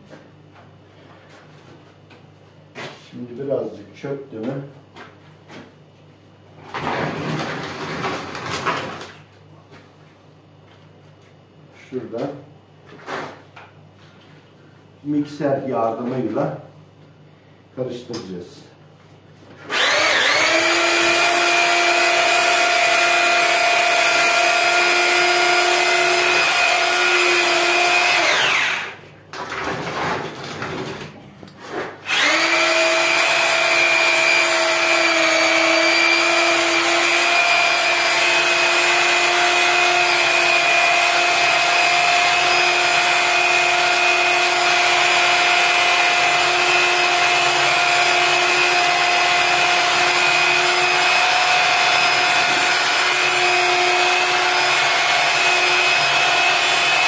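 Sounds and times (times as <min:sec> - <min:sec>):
electric paddle mixer whining: 0:19.7 - 0:29.0, 0:32.1 - 0:57.0.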